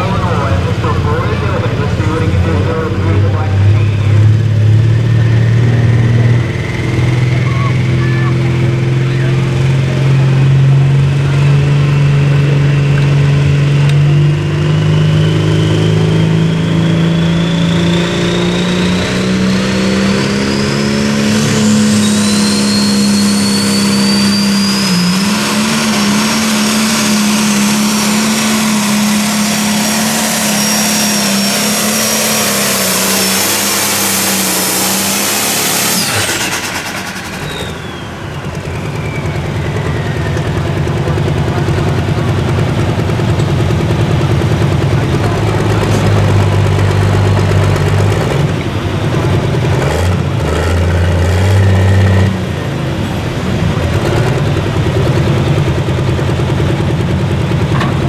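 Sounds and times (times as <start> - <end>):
diesel engine at full throttle: 0.0 - 58.0
high turbo whistle: 15.1 - 40.8.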